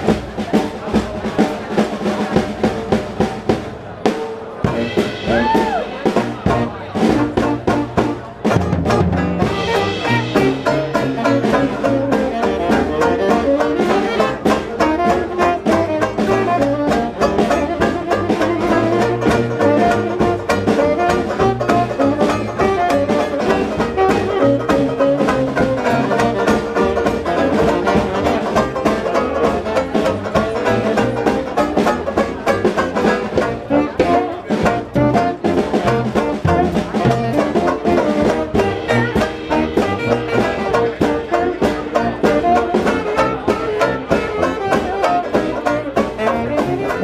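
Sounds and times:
drum kit beat: 0:00.0 - 0:47.0
strummed banjo: 0:00.0 - 0:47.0
tuba: 0:04.6 - 0:47.0
tenor saxophone: 0:09.3 - 0:31.2, 0:33.1 - 0:47.0.

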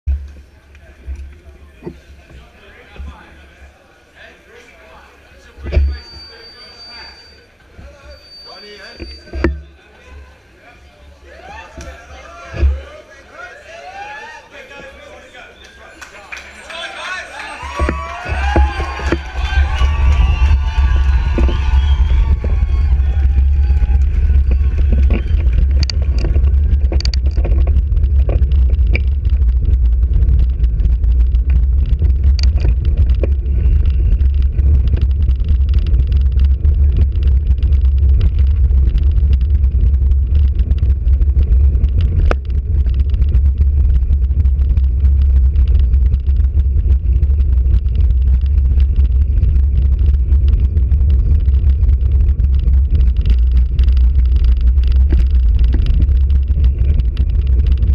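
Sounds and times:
bicycle road vibration on brick: 0:00.0 - 0:03.6, 0:16.5 - 0:57.9
wind buffeting: 0:17.6 - 0:57.9
sharp clicks: 0:17.7 - 0:57.9.

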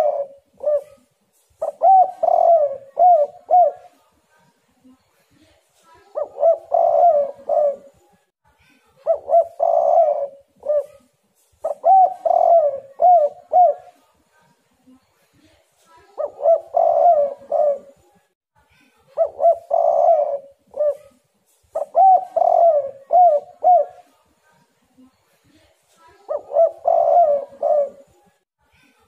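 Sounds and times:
dove cooing: 0:00.0 - 0:04.0, 0:06.1 - 0:08.0, 0:09.0 - 0:14.0, 0:16.1 - 0:18.0, 0:19.2 - 0:24.1, 0:26.3 - 0:28.2.

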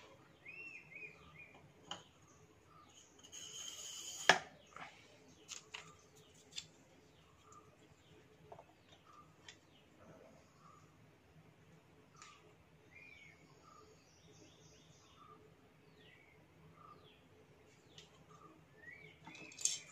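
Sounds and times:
birds chirping faintly: 0:00.0 - 0:19.9
pump parts clicking and knocking: 0:19.2 - 0:19.9.

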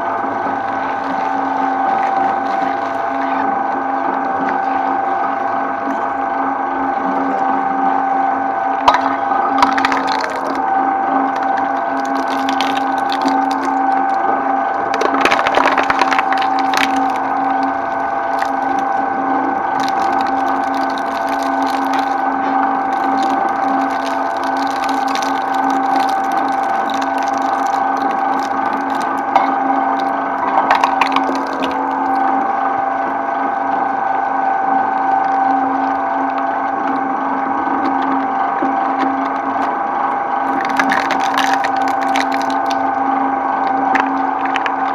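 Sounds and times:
shredder drive whine: 0:00.0 - 0:44.9
plastic crunching and cracking: 0:08.8 - 0:32.5, 0:40.5 - 0:44.9.

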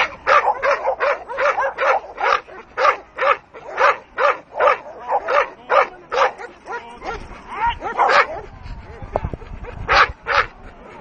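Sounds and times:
dog barking: 0:00.0 - 0:08.4, 0:09.9 - 0:10.5.

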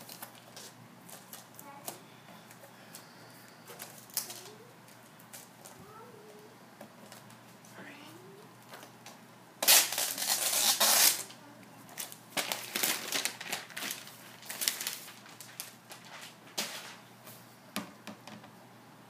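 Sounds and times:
wrapping rustling: 0:09.6 - 0:11.3, 0:11.9 - 0:17.4
cardboard rustling: 0:11.9 - 0:17.0.

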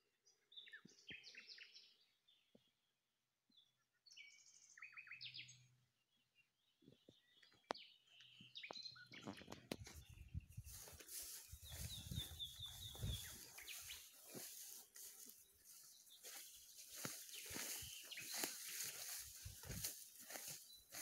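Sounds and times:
songbirds chirping: 0:00.0 - 0:21.0.

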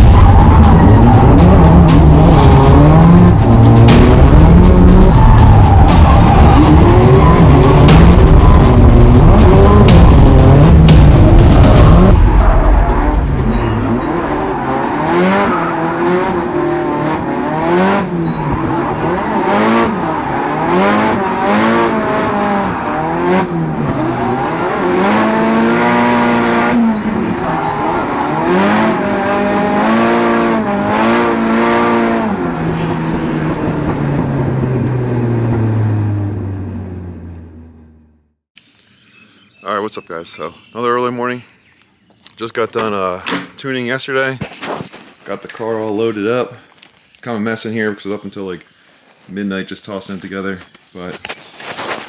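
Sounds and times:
car engines revving: 0:00.0 - 0:38.3.

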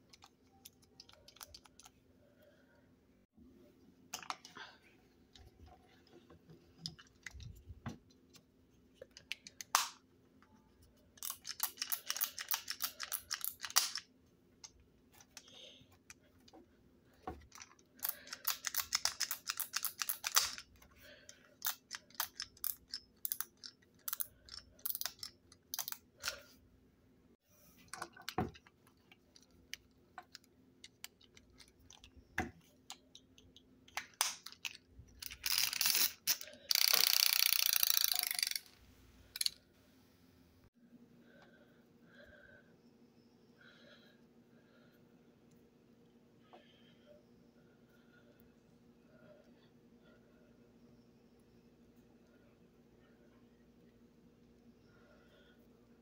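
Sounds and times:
plastic toy parts clicking: 0:00.0 - 0:01.9, 0:11.2 - 0:15.5, 0:17.4 - 0:20.8, 0:21.6 - 0:26.4, 0:32.9 - 0:39.6.

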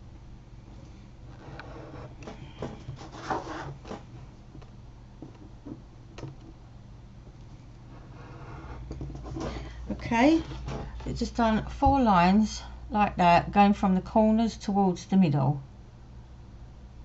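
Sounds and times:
craft knife cutting paper: 0:02.9 - 0:04.1.

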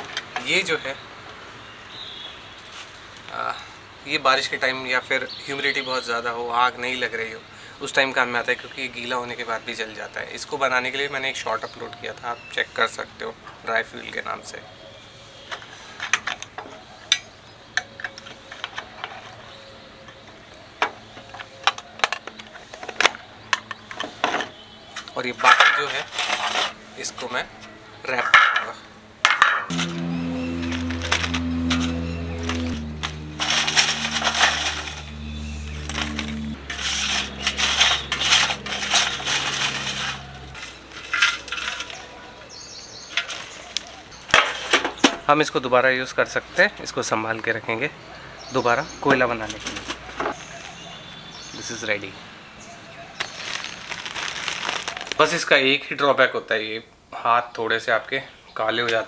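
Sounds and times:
charcoal clinking on metal tin: 0:35.9 - 0:42.2
plastic bag crinkling: 0:53.2 - 0:55.5.

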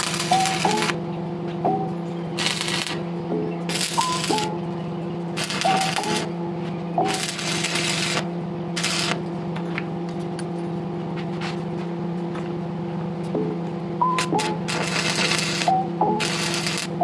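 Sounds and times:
arc welding hissing crackle: 0:00.0 - 0:01.0, 0:02.3 - 0:04.6, 0:05.2 - 0:06.4, 0:07.0 - 0:09.3, 0:14.2 - 0:17.0
steady electric hum: 0:00.0 - 0:17.0.

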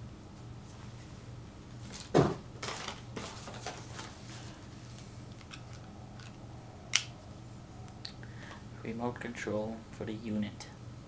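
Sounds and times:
faint low hum: 0:00.0 - 0:11.0
plastic packaging rustling: 0:01.8 - 0:06.3.

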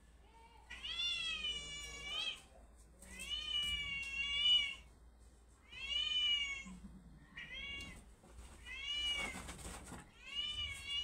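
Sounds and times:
recorded cat meows: 0:00.6 - 0:04.9, 0:05.6 - 0:09.5.

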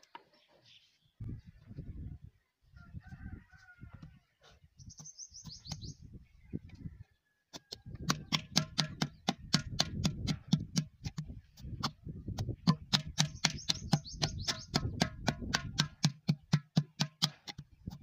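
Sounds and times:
wooden paddle slapping clay pot: 0:04.9 - 0:06.0, 0:07.5 - 0:18.0.

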